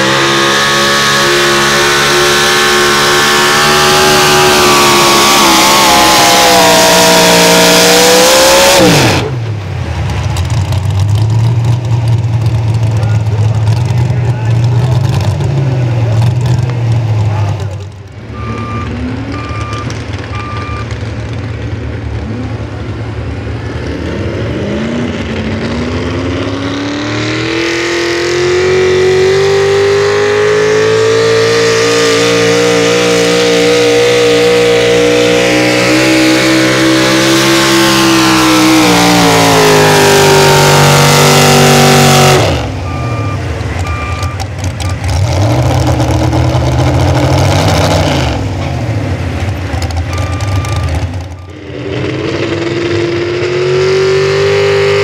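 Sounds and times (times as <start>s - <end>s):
truck engine revving: 0.0s - 55.0s
backup alarm beeping: 18.3s - 20.9s, 42.8s - 45.0s, 50.1s - 51.6s.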